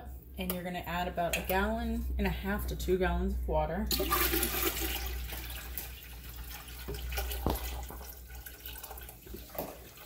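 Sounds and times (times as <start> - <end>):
water pouring into metal pot: 3.9 - 10.0.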